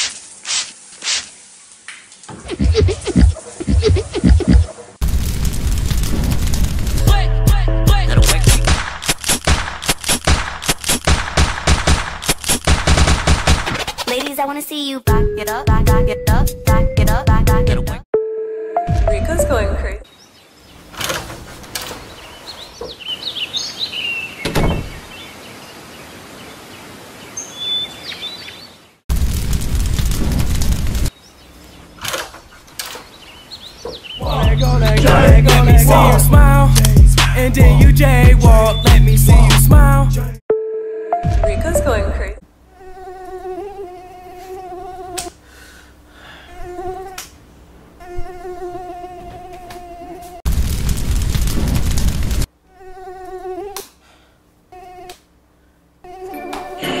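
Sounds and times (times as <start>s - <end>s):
background hiss: 0.0s - 2.4s
birds chirping: 20.0s - 29.0s, 31.1s - 35.0s, 38.5s - 39.2s
mosquito buzzing: 48.0s - 50.4s.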